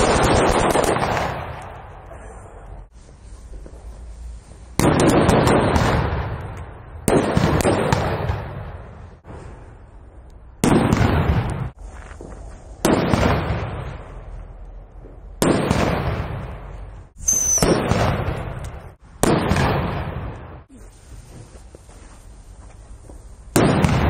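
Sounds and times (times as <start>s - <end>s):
firecracker bangs with echo: 0.0s - 2.1s, 4.8s - 9.3s, 10.6s - 11.8s, 12.8s - 14.2s, 15.4s - 20.7s, 23.5s - 24.0s.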